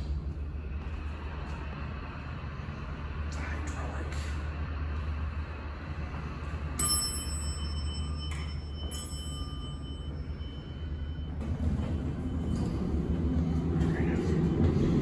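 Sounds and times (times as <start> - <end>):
low rumble: 0.0 - 8.8, 9.6 - 15.0
steady low hum: 0.0 - 15.0
elevator chime dinging: 6.5 - 15.0.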